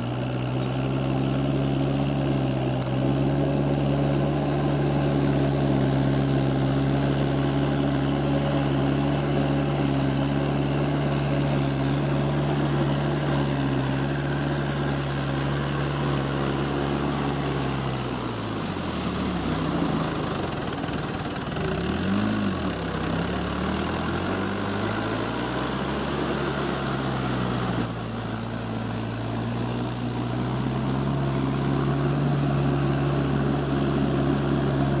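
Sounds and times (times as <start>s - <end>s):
tractor diesel engine running: 0.0s - 35.0s.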